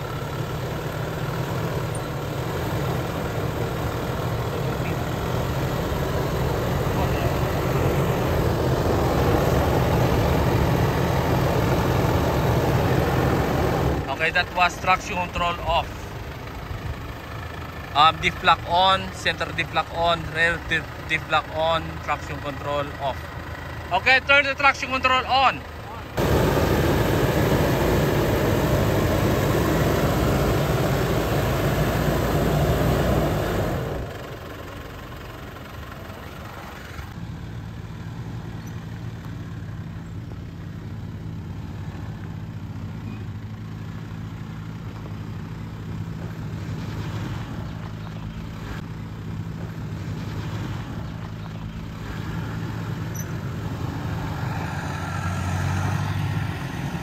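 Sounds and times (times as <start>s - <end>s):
engine running under load: 0.0s - 57.0s
loud rushing noise: 26.2s - 34.0s.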